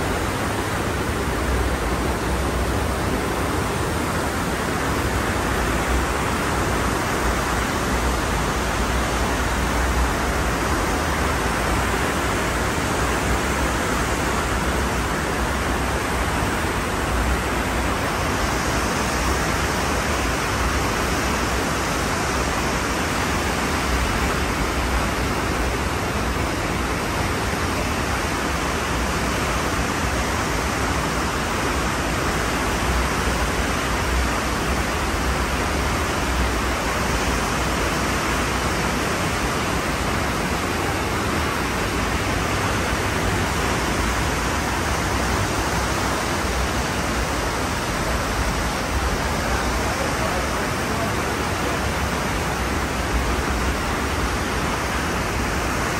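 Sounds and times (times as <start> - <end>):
ocean surf rushing: 0.0 - 55.9.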